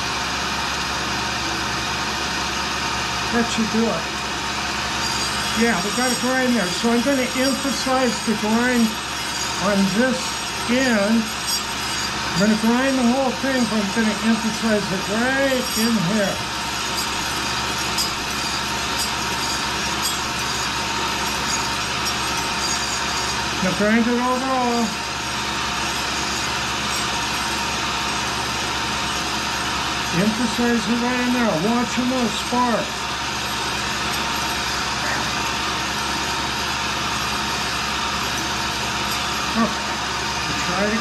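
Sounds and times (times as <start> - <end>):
grinding wheel on steel: 0.0 - 41.0
motor hum: 0.0 - 41.0.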